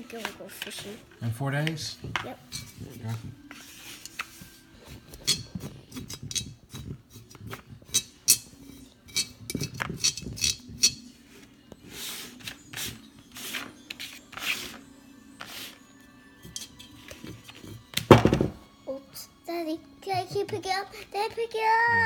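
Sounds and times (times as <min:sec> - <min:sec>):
brush rubbing strokes: 0:02.6 - 0:07.8, 0:11.1 - 0:14.8, 0:15.4 - 0:15.9.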